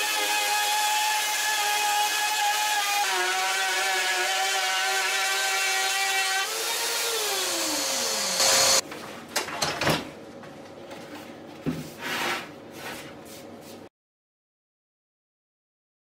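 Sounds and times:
router motor whining: 2.8s - 8.8s.

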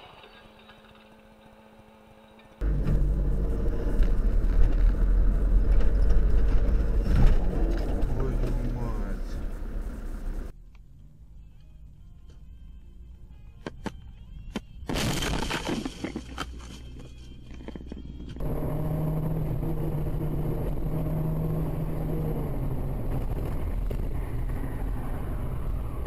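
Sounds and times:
car cabin engine and road noise: 2.6s - 14.8s, 16.2s - 26.0s
car crash: 14.9s - 16.3s.

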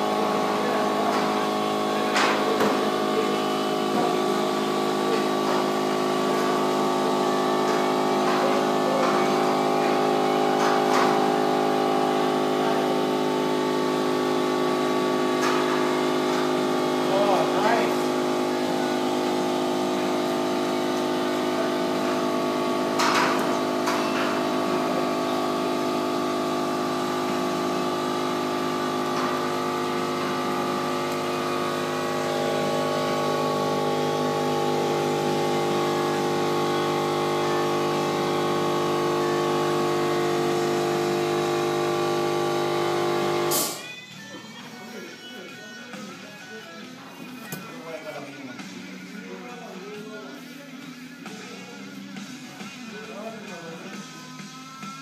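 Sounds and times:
machine drone: 0.0s - 43.8s.

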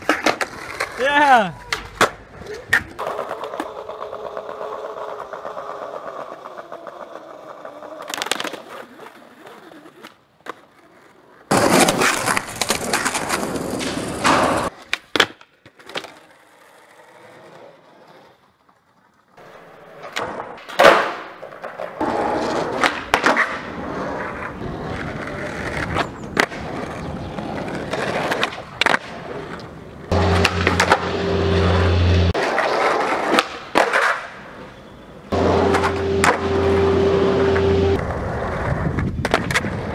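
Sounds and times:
skateboard pops and landings: 0.0s - 1.0s, 7.9s - 10.8s, 11.5s - 16.4s, 20.0s - 23.8s, 25.0s - 27.0s, 27.6s - 31.2s, 32.4s - 34.4s, 35.3s - 36.6s, 38.5s - 39.9s
skateboard wheels rolling on concrete: 0.0s - 39.9s.

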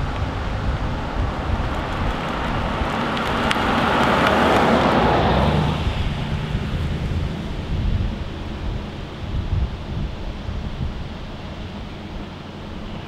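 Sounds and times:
wind rumbling on microphone: 0.0s - 13.0s
car driving past: 1.0s - 9.2s.

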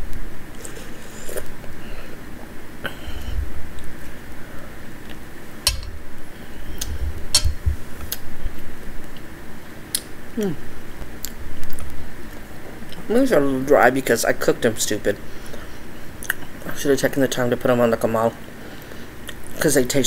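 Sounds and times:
metal spoon clicking on bowl: 5.7s - 5.9s.

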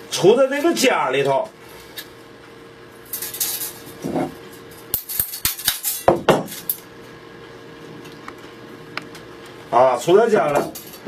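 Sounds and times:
steel strip clicking and rattling: 4.9s - 6.0s.

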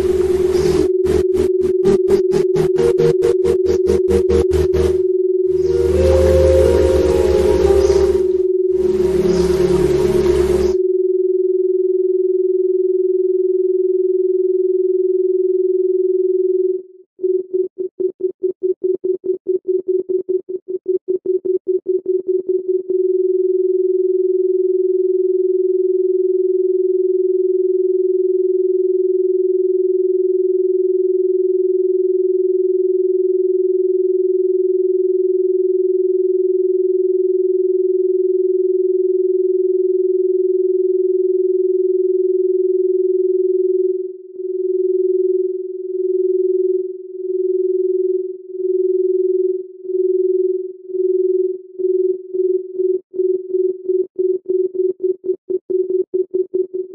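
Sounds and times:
stuttering electronic tone: 0.0s - 10.8s.

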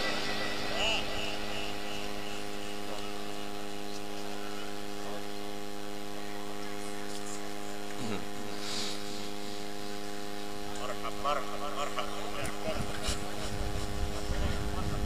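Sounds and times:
electrical mains hum: 0.0s - 15.0s.

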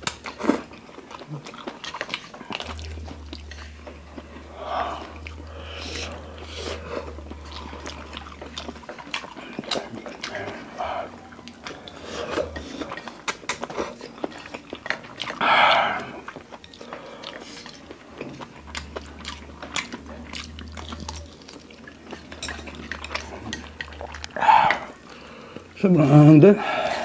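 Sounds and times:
wet chewing: 0.0s - 27.0s
slurping noodles: 0.3s - 14.4s
lip smacks: 11.4s - 15.4s.

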